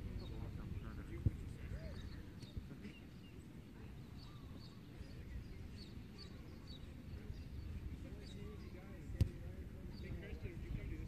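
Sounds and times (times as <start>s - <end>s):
wind on microphone: 4.2s - 11.0s.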